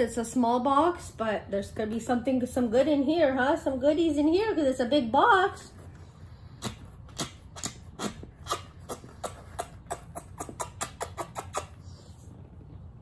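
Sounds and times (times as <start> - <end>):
kissing smacks of lips: 6.6 - 11.8.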